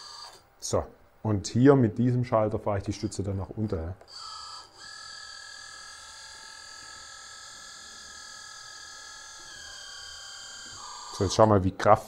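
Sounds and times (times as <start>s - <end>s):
hydraulic pump whining: 0.0s - 0.4s, 4.1s - 11.6s.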